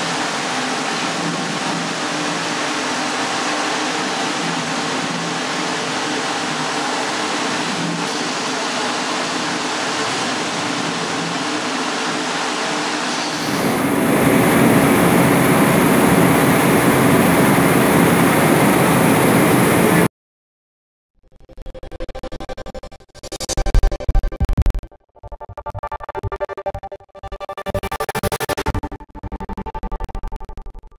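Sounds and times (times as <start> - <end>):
potato peeling line running: 0.0 - 20.1.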